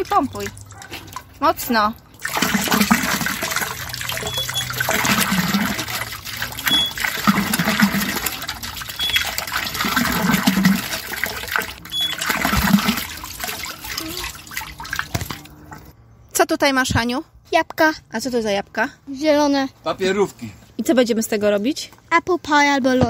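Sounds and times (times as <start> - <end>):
water gushing from hand pump: 0.0 - 15.5.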